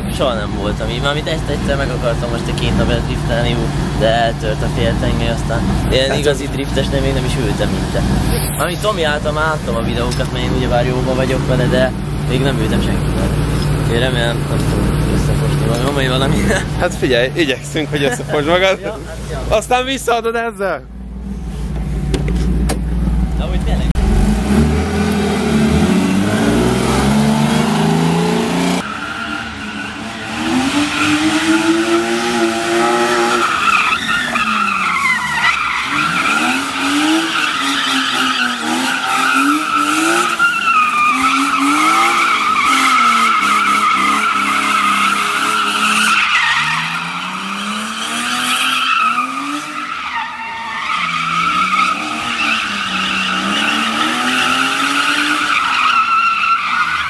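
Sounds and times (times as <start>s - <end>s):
car engine revving: 0.0s - 20.0s, 20.9s - 57.0s
tyres squealing: 25.8s - 57.0s.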